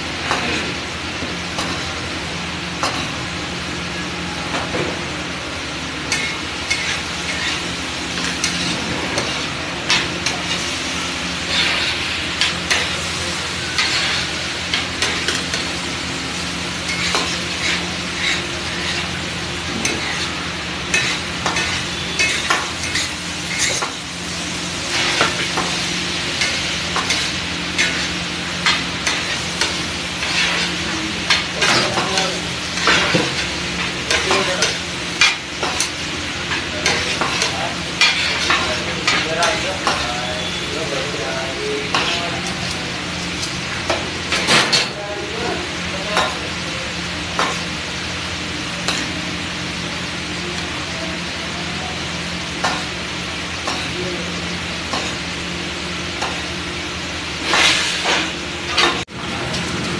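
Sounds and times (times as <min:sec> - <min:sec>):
food sizzling: 0:00.0 - 0:59.9
metal ladle scraping on griddle: 0:06.1 - 0:12.9, 0:13.6 - 0:15.5, 0:16.9 - 0:23.9, 0:26.4 - 0:33.5, 0:34.1 - 0:41.2, 0:57.4 - 0:58.4.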